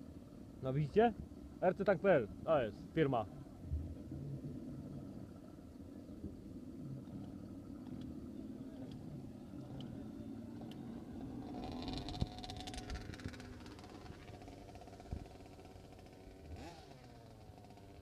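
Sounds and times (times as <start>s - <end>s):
low engine hum: 0.0s - 18.0s
high whirring: 4.8s - 18.0s
faint clicks: 7.0s - 13.9s.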